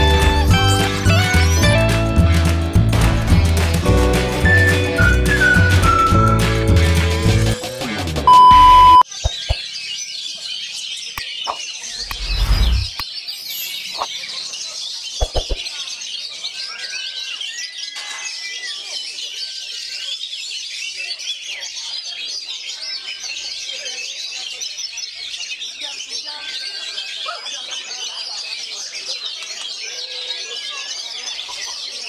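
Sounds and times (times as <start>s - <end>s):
electronic beep: 8.3s - 9.5s
chorus of songbirds: 9.0s - 32.0s
sharp clicks: 11.5s - 13.1s.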